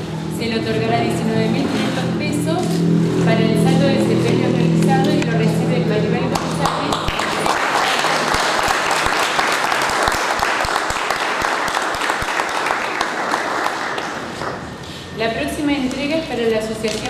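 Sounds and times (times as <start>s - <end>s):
people clapping: 6.2s - 14.8s.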